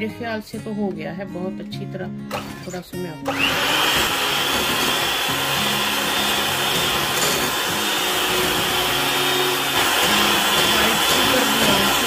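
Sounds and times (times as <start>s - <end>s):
electric hand mixer running: 3.2s - 12.0s.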